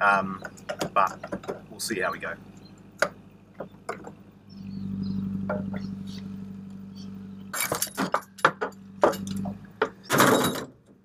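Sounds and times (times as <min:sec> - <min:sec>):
engine humming: 0:00.0 - 0:11.0
metallic clatter: 0:07.5 - 0:11.0.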